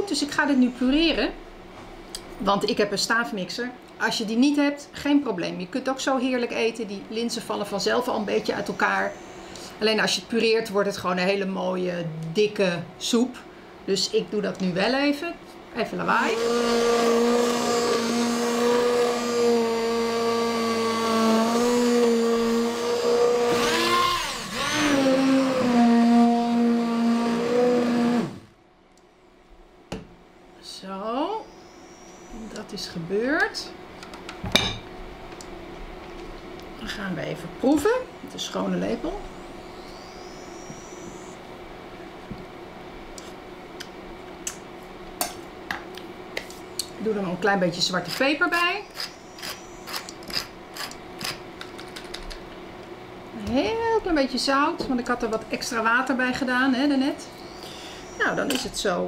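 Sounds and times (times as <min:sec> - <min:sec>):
steady low hum: 0:00.0 - 0:59.0
immersion blender motor whine: 0:16.1 - 0:28.5, 0:39.0 - 0:41.4, 0:48.1 - 0:51.4, 0:57.4 - 0:58.7.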